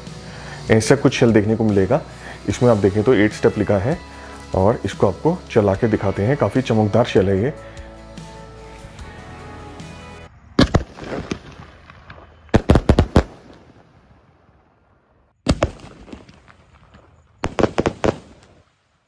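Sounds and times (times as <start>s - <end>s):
firework shells bursting with bangs: 10.6s - 13.9s, 15.4s - 18.8s.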